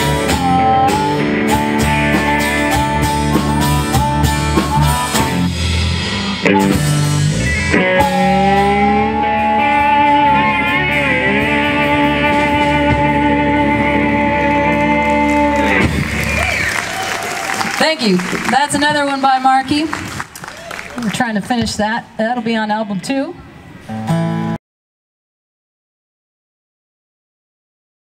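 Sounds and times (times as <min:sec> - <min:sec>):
harmonica: 0:00.0 - 0:15.7
live blues-rock band: 0:00.0 - 0:19.2.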